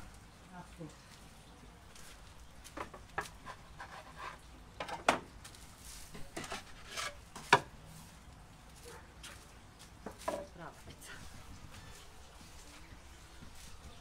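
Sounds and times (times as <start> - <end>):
wooden peel knocking and scraping: 6.1 - 7.7.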